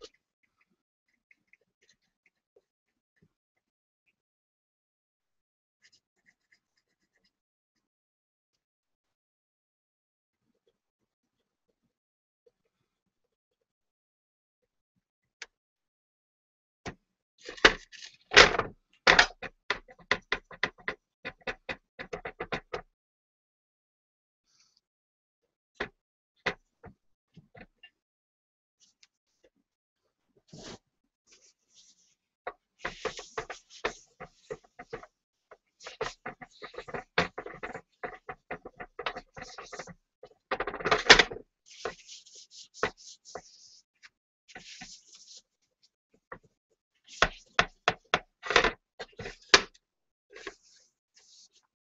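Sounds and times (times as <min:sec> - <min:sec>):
cloth rubbing on a bowl: 0:41.7 - 0:43.9.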